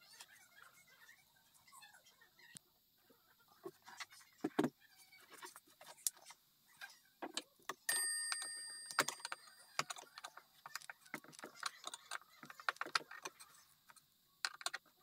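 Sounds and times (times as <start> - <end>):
clock chime bell ringing: 7.9 - 9.7.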